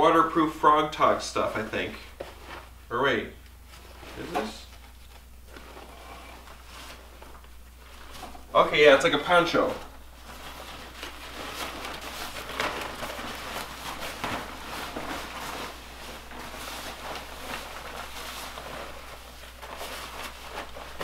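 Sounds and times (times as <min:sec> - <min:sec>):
plastic poncho rustling: 0:00.2 - 0:21.0.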